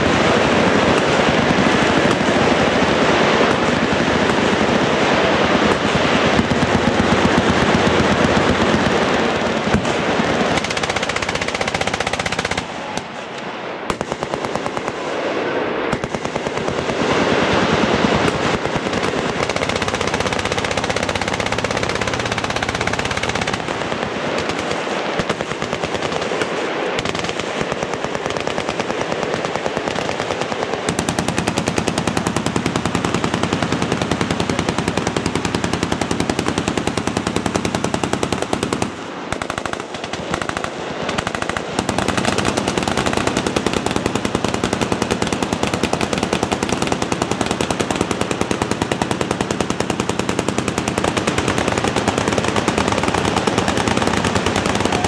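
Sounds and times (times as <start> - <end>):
machine guns firing: 0.0 - 55.0.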